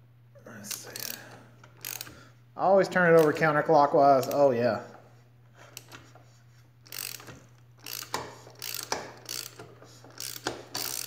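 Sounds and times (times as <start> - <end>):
ratchet wrench clicking: 0.7 - 1.2, 1.8 - 2.2, 6.8 - 11.0.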